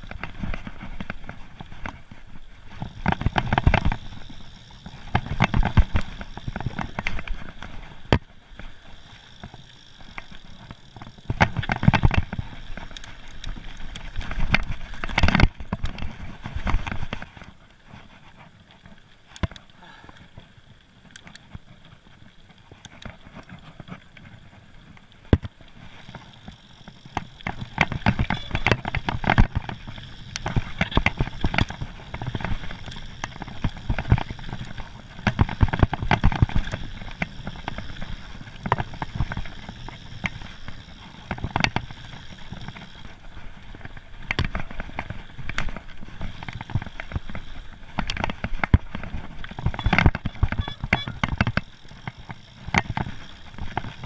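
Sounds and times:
bike rattling and knocking: 0:00.0 - 0:20.3, 0:25.2 - 0:54.0
bike tyres crunching over ground: 0:00.0 - 0:54.0.

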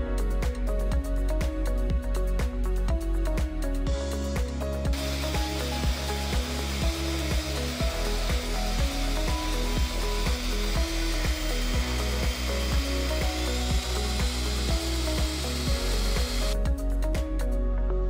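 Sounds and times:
background music with steady beat: 0:00.0 - 0:18.0
electric hand mixer whirring: 0:04.9 - 0:16.7.

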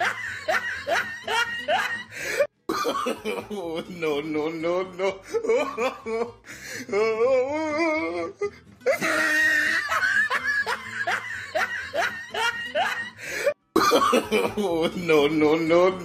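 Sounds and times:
wavering pulsing laugh: 0:00.0 - 0:02.2, 0:08.9 - 0:13.3
background music: 0:00.0 - 0:16.0.

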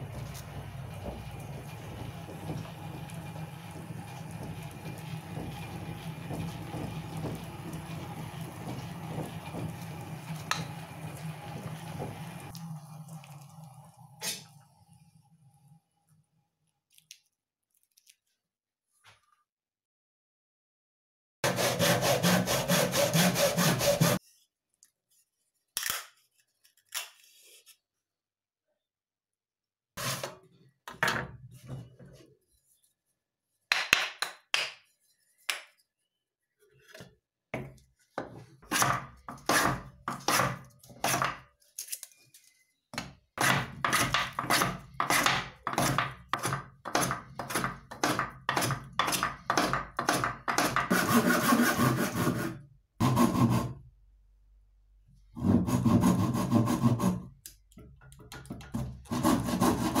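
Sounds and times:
handsaw cutting wood: 0:21.4 - 0:24.2, 0:38.6 - 0:41.3, 0:43.4 - 0:53.8, 0:55.4 - 0:57.3, 0:58.8 - 1:00.0.

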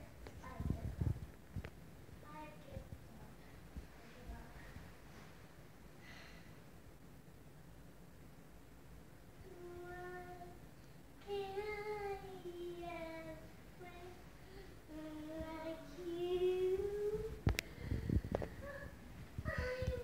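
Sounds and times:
child singing wordless tune: 0:09.4 - 0:17.5.

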